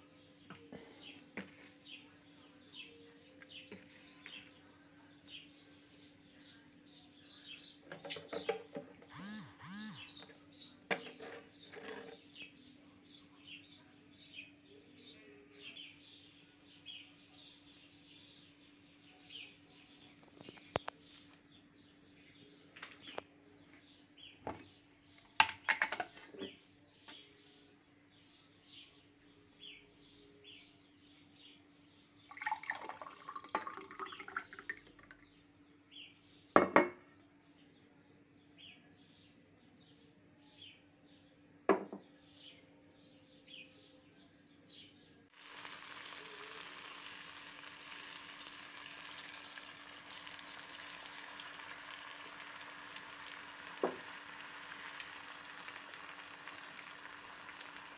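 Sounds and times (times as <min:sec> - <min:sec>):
eggs sizzling in a pan: 0:45.3 - 0:57.9.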